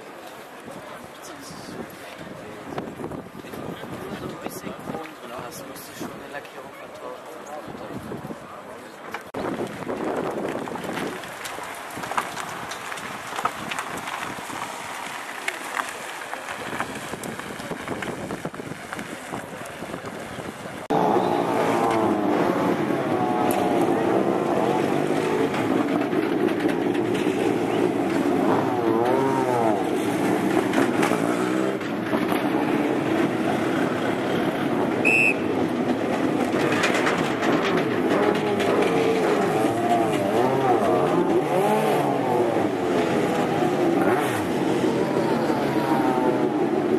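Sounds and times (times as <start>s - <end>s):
crowd murmur: 0.0s - 46.9s
pit-lane noise: 0.0s - 46.9s
wind buffeting microphone: 1.6s - 5.0s, 7.7s - 8.5s, 9.4s - 15.2s, 16.5s - 32.2s
racing car engine revving: 20.8s - 35.0s, 35.9s - 46.9s.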